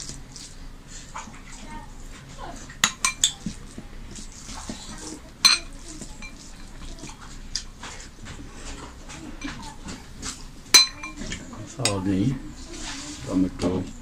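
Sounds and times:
metal spoon clinking on plates: 2.8 - 3.5, 5.4 - 7.2, 9.1 - 10.0, 10.7 - 12.1.

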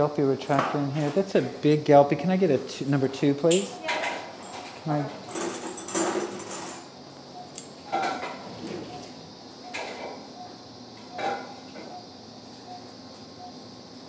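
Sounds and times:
metal instruments clinking: 5.3 - 6.9.

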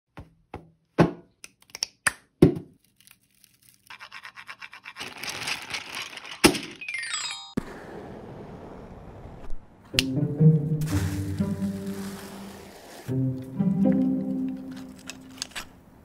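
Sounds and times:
fast rattling taps and scraping: 3.9 - 6.8
glockenspiel notes: 6.8 - 7.6.

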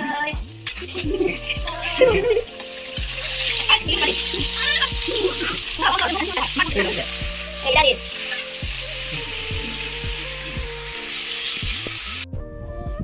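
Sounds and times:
food sizzling in oil: 0.0 - 12.3
background music: 0.0 - 13.0
metal spatula scraping pan: 1.6 - 8.6.

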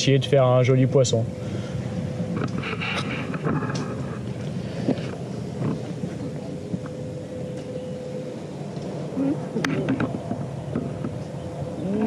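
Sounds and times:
faint steady hum: 0.0 - 12.0
handling rumble: 0.0 - 12.0
wind on microphone: 1.1 - 12.0.

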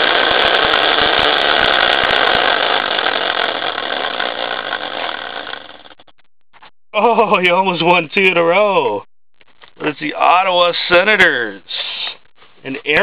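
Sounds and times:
prize wheel spinning and rattling: 0.0 - 6.1.

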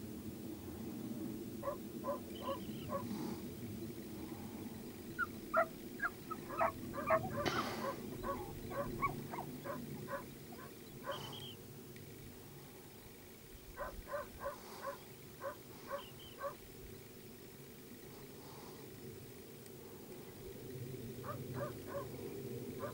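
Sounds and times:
low background noise: 0.0 - 22.9
short animal calls: 1.6 - 3.3, 5.1 - 11.6, 13.8 - 16.6.

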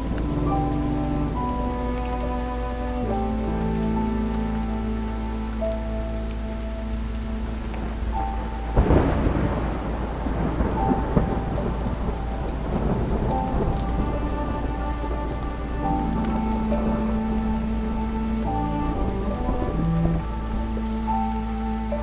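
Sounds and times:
soft held musical notes: 0.0 - 22.0
steady rain: 0.0 - 22.0
thunder crack and rumble: 7.7 - 21.1.

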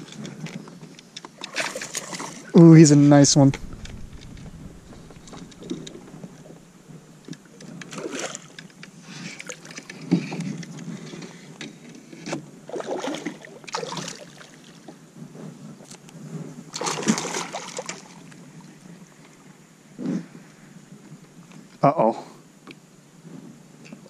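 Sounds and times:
fish splashing in water: 12.7 - 14.6, 16.7 - 18.3.

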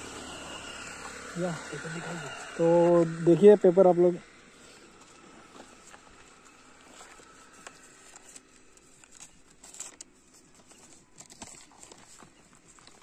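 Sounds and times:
paper crinkling and rustling: 5.6 - 13.0.

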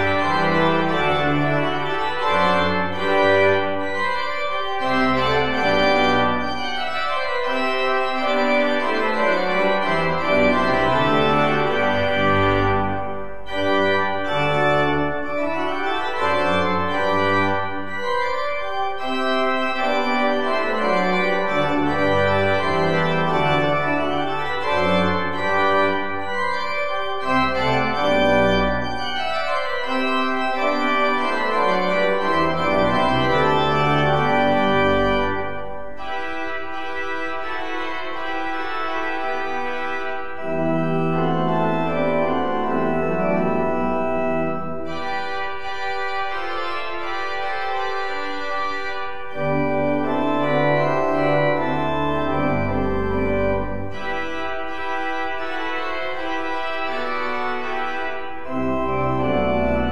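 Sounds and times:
pipe organ playing: 0.0 - 59.9.

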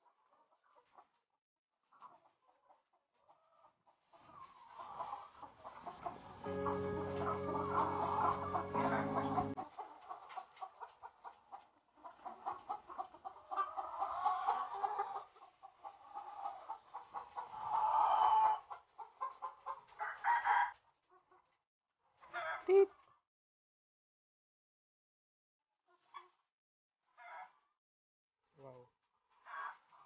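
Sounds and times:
hens clucking and cackling: 1.9 - 21.5
low steady drone: 6.0 - 9.6.

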